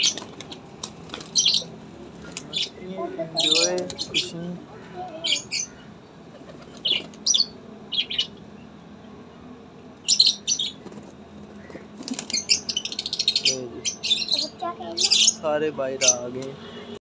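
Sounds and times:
pigeons flapping wings: 0.0 - 1.6, 10.8 - 12.5.

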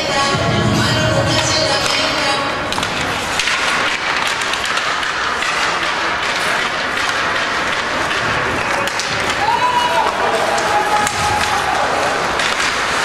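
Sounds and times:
arena music: 0.0 - 2.8.

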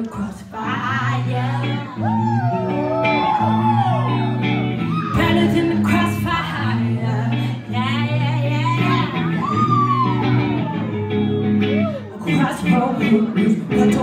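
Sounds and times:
woman singing: 0.0 - 3.1, 5.0 - 10.0, 12.1 - 14.0
amplified electric guitar: 0.0 - 14.0.

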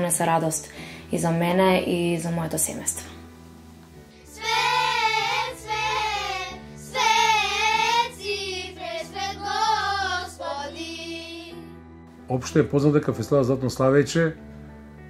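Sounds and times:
low musical accompaniment: 0.0 - 15.0
children's choir singing: 4.3 - 11.7.

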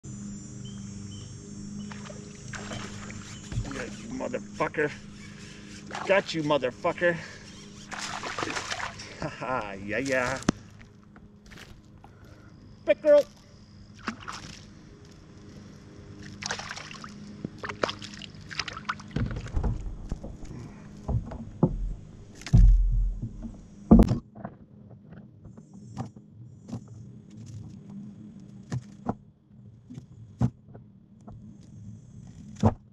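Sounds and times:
water sloshing: 1.9 - 11.9, 13.9 - 15.1, 16.1 - 23.9
heavy thump: 19.2 - 24.2.

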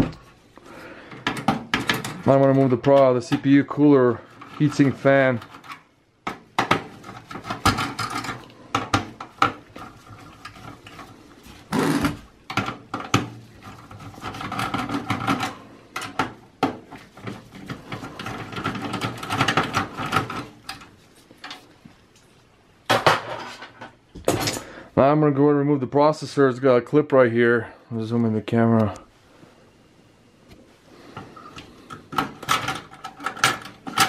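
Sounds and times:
clicks and scraping of metal and plastic: 1.0 - 21.7, 31.1 - 34.0.

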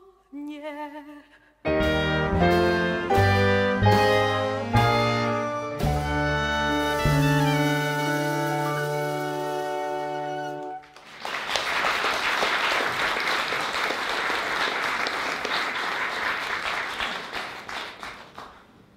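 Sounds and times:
audience applause: 9.8 - 18.7.

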